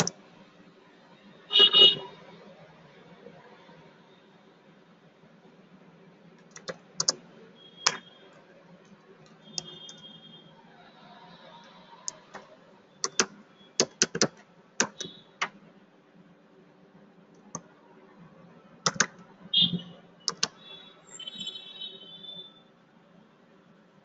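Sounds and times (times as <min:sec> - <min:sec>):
computer keyboard key clicks: 0:06.4 - 0:07.2, 0:12.1 - 0:15.6, 0:18.9 - 0:19.2, 0:20.3 - 0:20.6.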